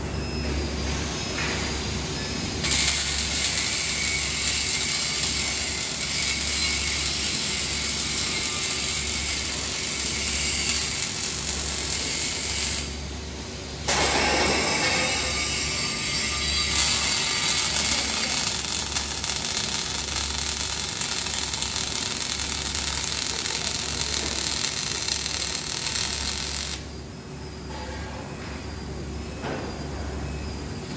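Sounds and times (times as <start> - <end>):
welding equipment hum: 0.7 - 27.8
welding arc crackling and hissing: 2.5 - 27.2.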